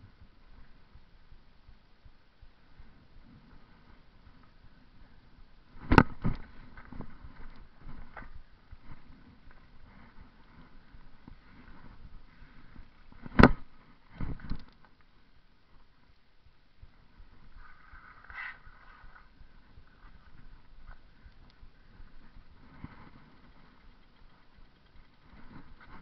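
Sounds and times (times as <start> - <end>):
bicycle rolling over concrete: 17.6 - 26.0.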